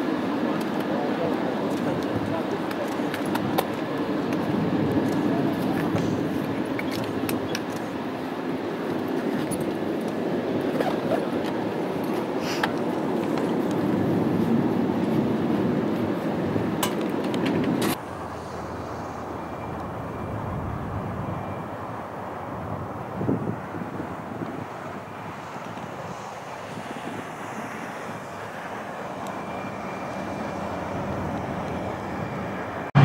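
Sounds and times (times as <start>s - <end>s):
turboprop engines droning: 0.0s - 33.0s.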